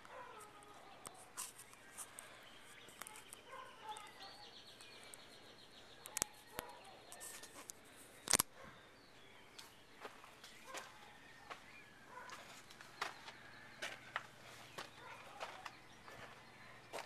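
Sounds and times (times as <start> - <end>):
birds chirping: 0.0 - 17.0
sharp clicks: 7.6 - 8.5.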